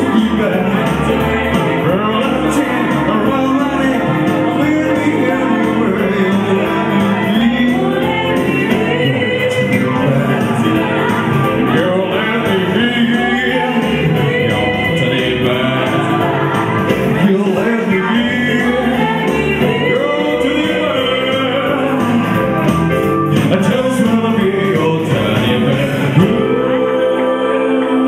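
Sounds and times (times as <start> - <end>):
electronic keyboard backing: 0.0 - 28.0
man singing: 0.0 - 28.0
woman singing: 1.3 - 12.0, 12.9 - 22.0.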